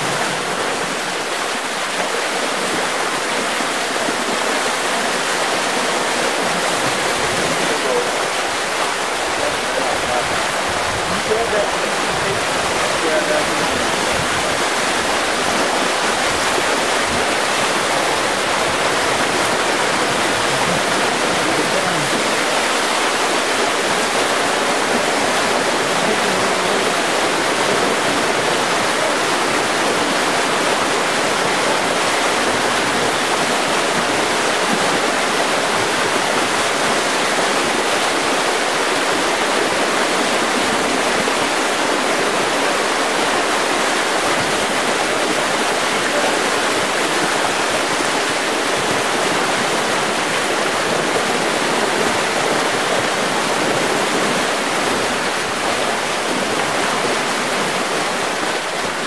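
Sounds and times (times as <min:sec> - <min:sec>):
floodwater rushing: 0:00.0 - 0:59.0.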